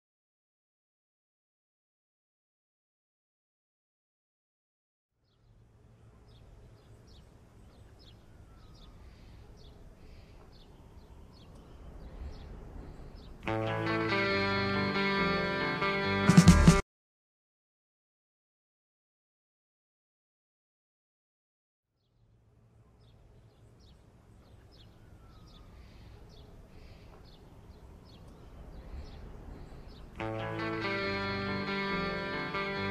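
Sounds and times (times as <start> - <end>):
small birds chirping: 5.2 - 14.6, 22.0 - 32.9
guitar music: 13.4 - 16.8, 30.2 - 32.9
faint hiss: 24.9 - 30.2.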